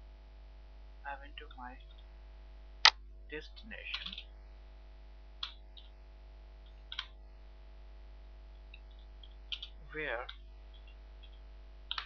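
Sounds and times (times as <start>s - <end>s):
steady electrical hum: 0.0s - 12.0s
computer keyboard keystrokes: 3.9s - 4.2s, 6.9s - 7.1s, 8.8s - 9.8s, 10.8s - 12.0s.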